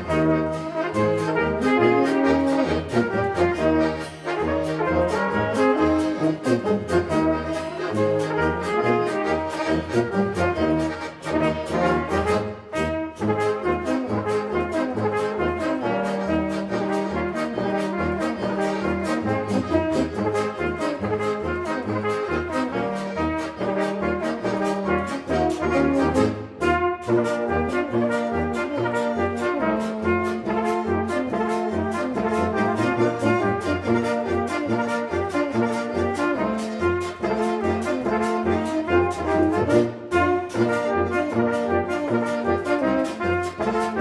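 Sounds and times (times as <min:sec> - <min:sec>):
brass band music: 0:00.0 - 0:44.0.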